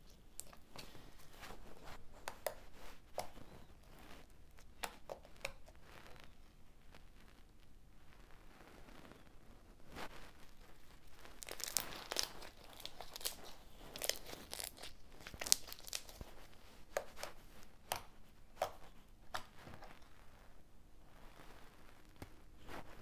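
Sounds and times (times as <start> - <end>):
slime crackling and popping: 0.0 - 7.7, 9.9 - 20.2.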